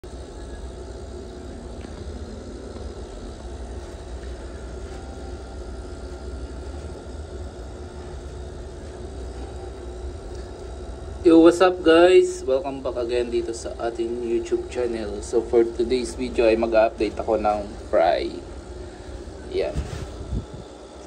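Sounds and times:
aquarium air pumps humming: 0.0s - 21.0s.

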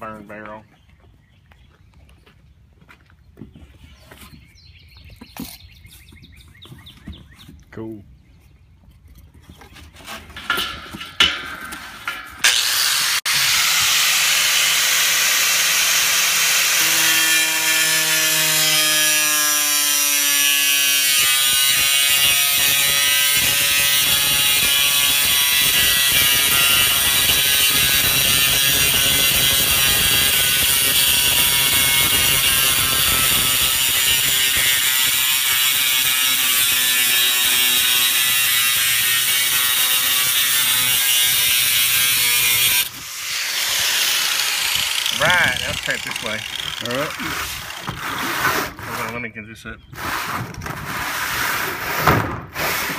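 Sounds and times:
angle grinder cutting steel: 10.4s - 49.2s.

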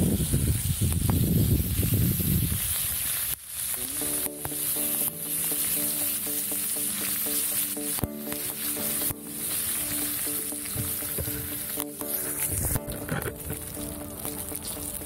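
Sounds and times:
steak sizzling on griddle: 1.1s - 15.0s
soft background music: 3.8s - 15.0s.

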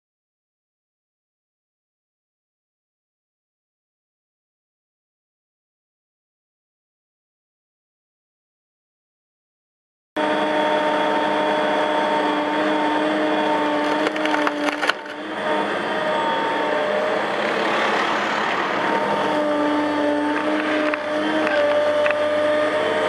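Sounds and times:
excavator engine humming: 10.2s - 23.0s
wood cracking and splintering: 13.7s - 15.2s
trunk snapping: 13.8s - 15.2s.

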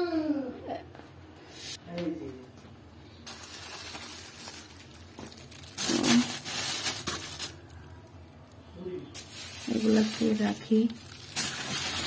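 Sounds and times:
plastic bags crinkling: 3.2s - 12.0s.

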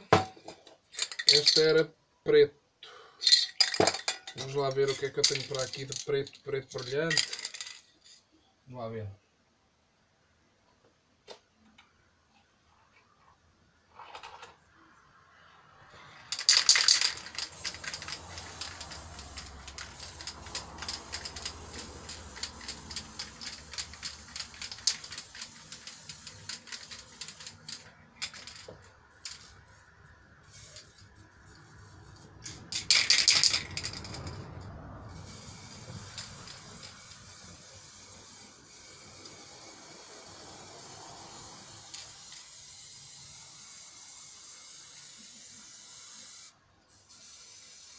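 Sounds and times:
mixing ball rattling in can: 3.2s - 8.2s, 16.2s - 29.8s, 32.3s - 37.3s
spray paint can spraying: 16.3s - 29.8s, 30.4s - 34.2s, 35.1s - 47.9s.

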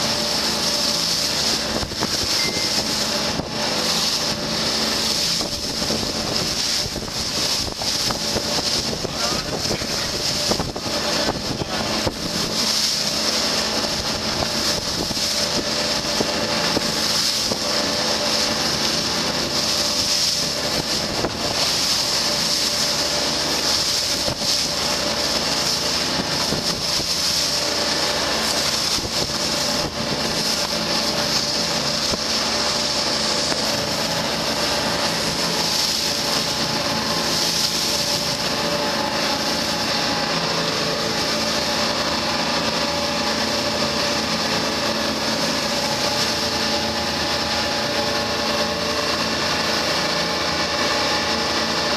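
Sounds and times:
bow wave rushing and spray: 0.0s - 51.9s
diesel boat engines running: 0.0s - 51.9s
wind buffeting microphone: 5.2s - 12.7s.

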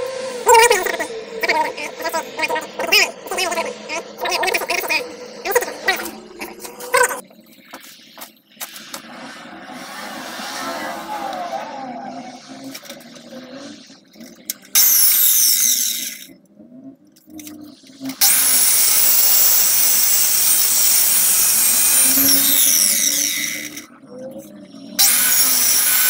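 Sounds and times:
angle grinder cutting concrete: 0.0s - 7.2s, 14.8s - 16.3s, 18.1s - 26.0s.

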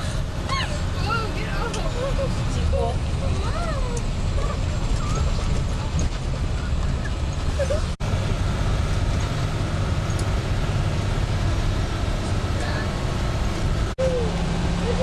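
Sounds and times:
bus engine and tyre rumble: 0.0s - 15.0s.

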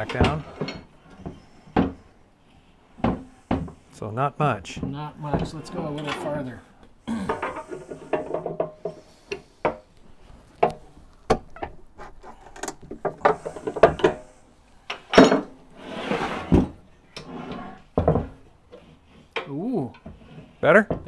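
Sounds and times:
pipe wrench clanking on metal: 0.0s - 2.0s, 7.3s - 9.8s, 14.9s - 15.6s
metal scrape: 12.0s - 20.8s.

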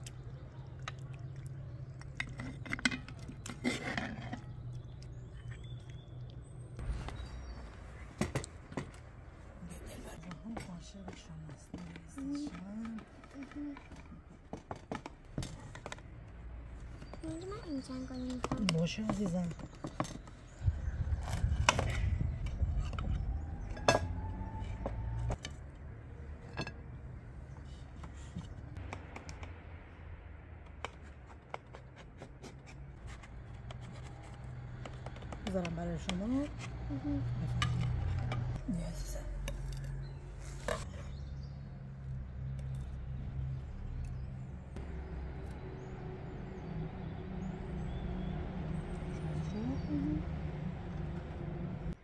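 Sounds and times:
engine humming: 32.8s - 52.0s.

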